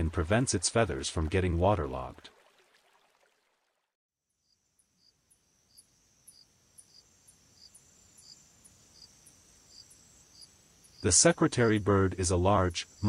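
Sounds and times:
faint insect chorus trilling: 4.3 - 13.0.

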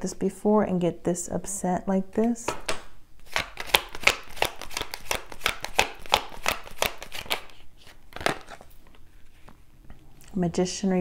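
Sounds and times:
cards being shuffled: 2.6 - 9.6.

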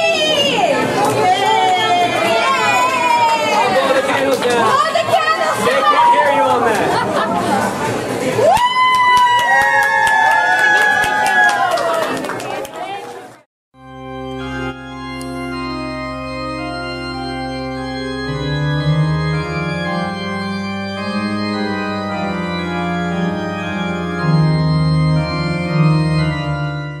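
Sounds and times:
sustained organ chords: 13.8 - 27.0.

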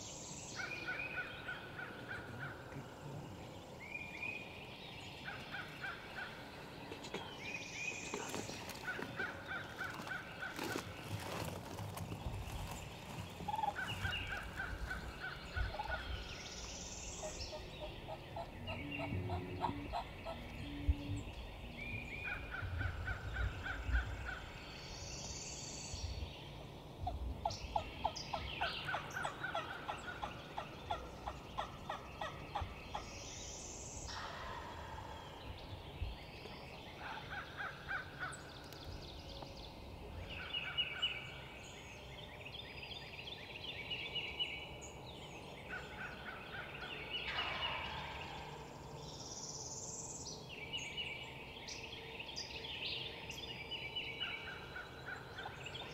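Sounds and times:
birds singing: 0.0 - 55.9
turkey gobbling: 17.5 - 20.5, 47.3 - 48.4.

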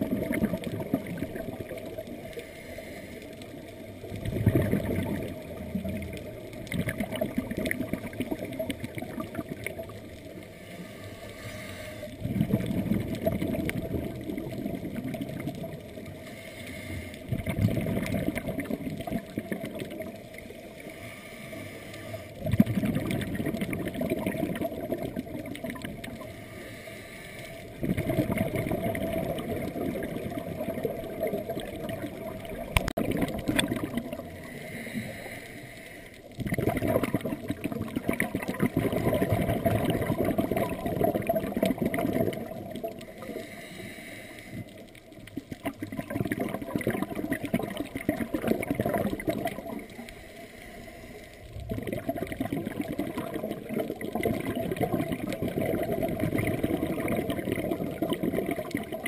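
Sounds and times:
underwater regulator breathing bubbles: 20.9 - 59.0.

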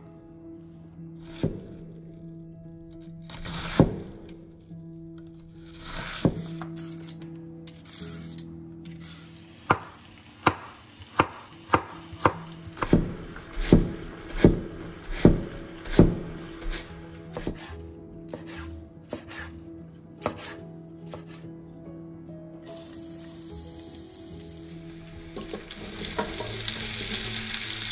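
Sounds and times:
knife chopping on wooden board: 9.7 - 14.6, 15.2 - 19.6, 20.2 - 21.4.

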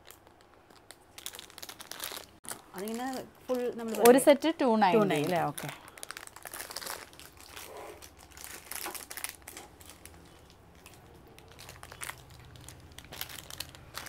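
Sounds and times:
bangles crinkling and clicking: 0.0 - 4.5, 5.1 - 14.0.

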